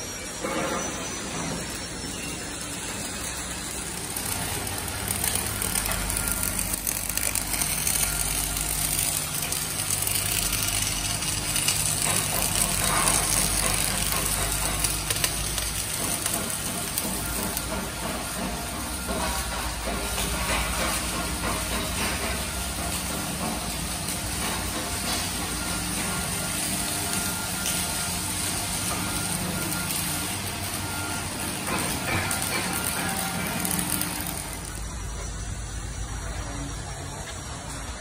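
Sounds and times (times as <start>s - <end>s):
arc welding crackling hiss: 0.0s - 38.0s
low machine hum: 0.0s - 38.0s.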